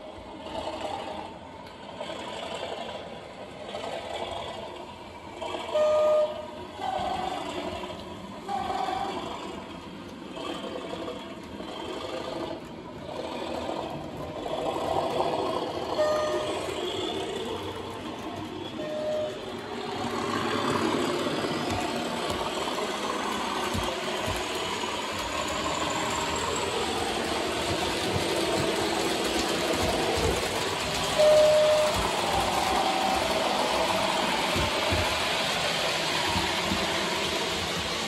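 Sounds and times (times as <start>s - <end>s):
model trains rattling on track: 0.0s - 38.0s
short single-pitch tone: 5.8s - 6.5s, 16.0s - 16.6s.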